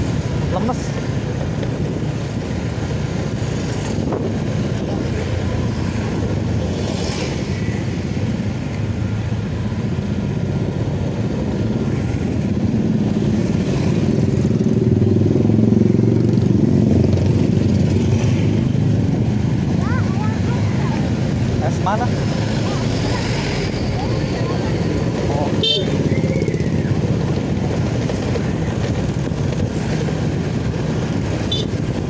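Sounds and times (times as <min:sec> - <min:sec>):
motorbikes passing by: 0:00.0 - 0:32.0
road traffic noise: 0:00.0 - 0:32.0
motorcycle engine running: 0:08.2 - 0:32.0.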